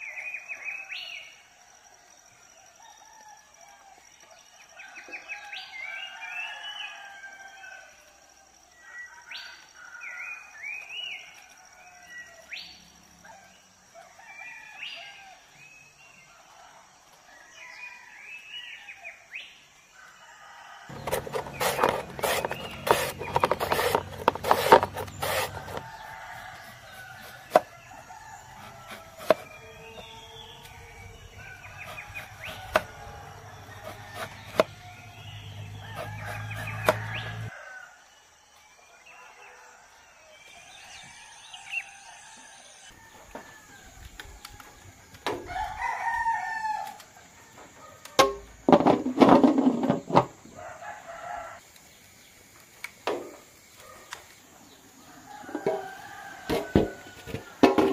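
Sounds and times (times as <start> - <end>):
roosters crowing: 2.8 - 19.0, 20.0 - 38.1, 38.8 - 51.7, 54.6 - 57.9
mandoline slicer scraping: 20.9 - 27.7, 28.5 - 30.1, 31.6 - 37.5
birds chirping: 20.9 - 37.8.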